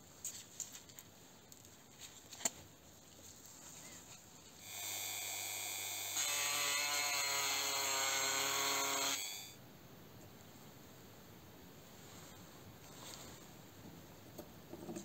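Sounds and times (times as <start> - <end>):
rotary tool whining: 4.6 - 9.5.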